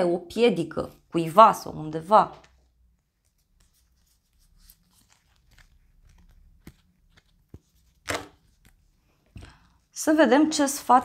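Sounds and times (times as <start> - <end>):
cards being shuffled: 2.3 - 9.6.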